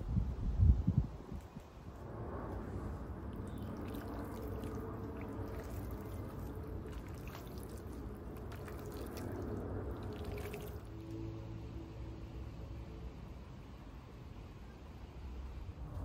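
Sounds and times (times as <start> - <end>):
hand squelching raw chicken: 3.4 - 10.9.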